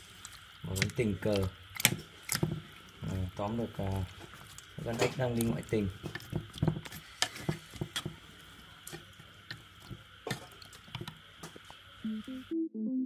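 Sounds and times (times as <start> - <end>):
wet squishing of marinade: 0.1 - 11.1
electronic keyboard music: 12.1 - 13.0.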